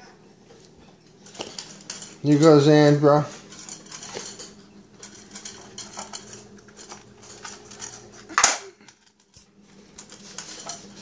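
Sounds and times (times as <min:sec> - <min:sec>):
bowl clatter: 0:01.2 - 0:02.7, 0:03.3 - 0:11.0
food clinking against bowls: 0:01.2 - 0:11.0.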